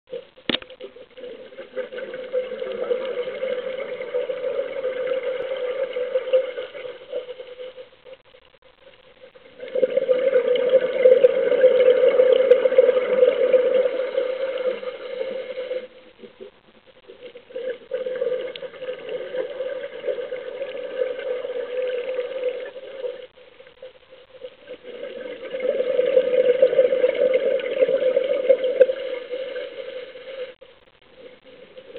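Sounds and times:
bubbling exhalations underwater: 9.5s - 15.8s.

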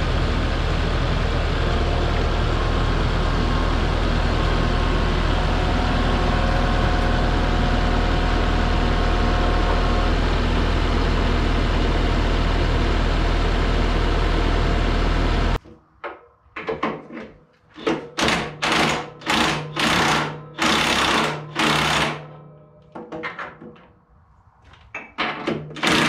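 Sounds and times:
diesel engine running: 0.0s - 15.6s.

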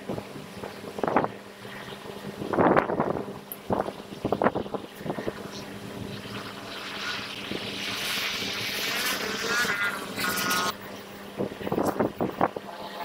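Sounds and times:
high engine whine: 0.0s - 13.0s.

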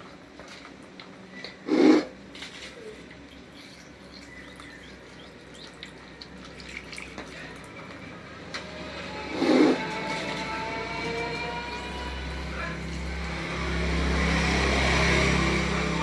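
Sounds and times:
liquid dripping: 3.0s - 8.2s.

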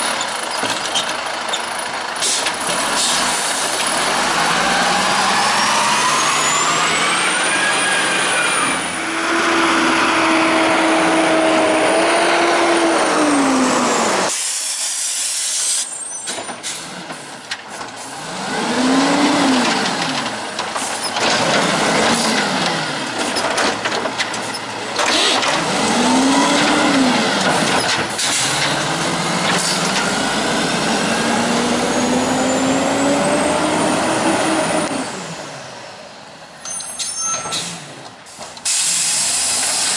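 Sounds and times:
garbage truck diesel engine revving: 1.2s - 14.3s, 17.9s - 36.0s
air brakes hissing: 2.2s - 3.7s, 13.9s - 17.0s, 37.0s - 39.9s
cart slammed and dumped bangs: 19.5s - 30.2s.

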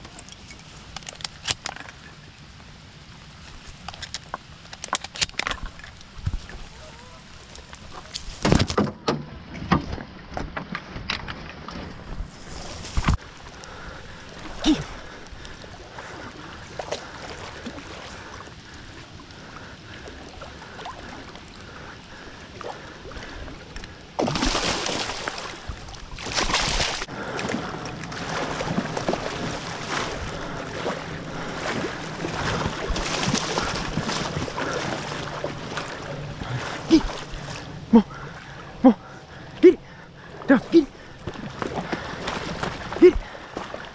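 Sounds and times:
water sloshing and splashing: 0.0s - 43.9s
waterbird thrashing in water: 24.2s - 37.6s.

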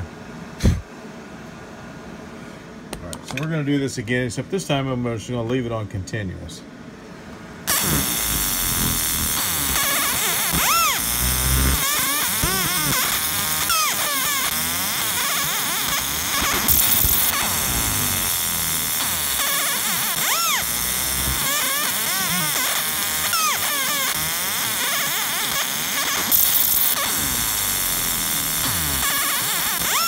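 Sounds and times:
laser scanner mirrors warbling: 7.7s - 30.0s
loud hissing bursts: 7.7s - 30.0s.

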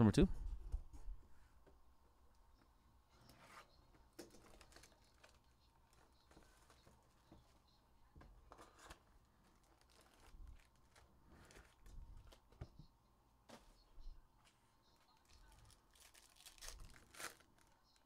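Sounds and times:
foil packs rustling: 8.7s - 12.5s, 15.2s - 18.0s.

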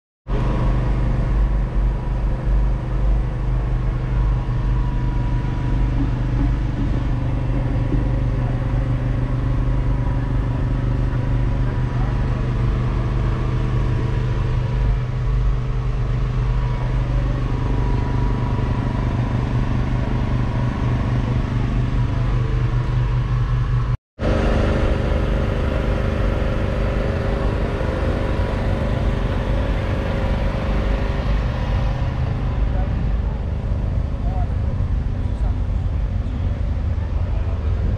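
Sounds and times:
engine running steadily: 0.3s - 37.9s.

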